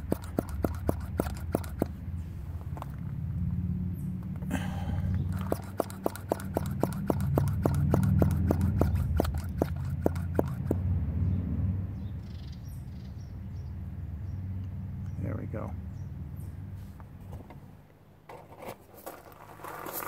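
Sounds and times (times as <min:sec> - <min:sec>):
hand pump clicking: 0:00.0 - 0:01.9, 0:05.3 - 0:10.7.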